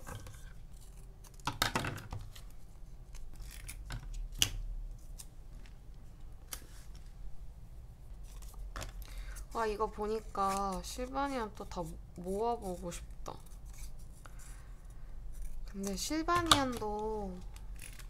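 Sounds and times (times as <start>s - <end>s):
paper rustling: 8.2s - 11.4s.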